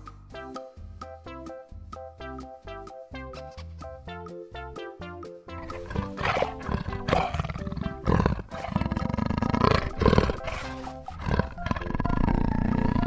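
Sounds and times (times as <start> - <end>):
background music: 0.0 - 13.0
big cat growling and snarling: 5.6 - 13.0.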